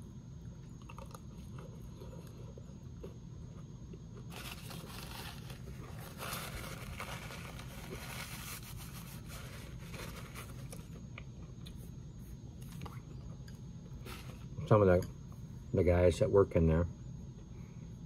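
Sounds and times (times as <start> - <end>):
low steady hum: 0.0 - 18.0
paper towel rustling: 4.3 - 10.9.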